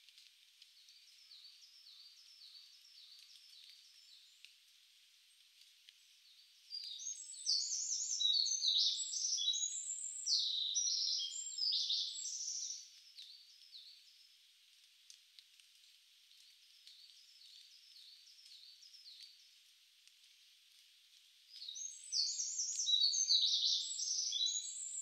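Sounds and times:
faint high hiss: 0:00.0 - 0:25.0
birds singing: 0:06.2 - 0:14.4, 0:21.5 - 0:25.0.

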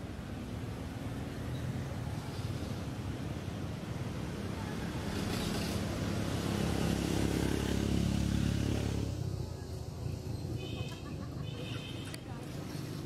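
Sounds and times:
vehicle engine passing by: 0:04.7 - 0:09.3.

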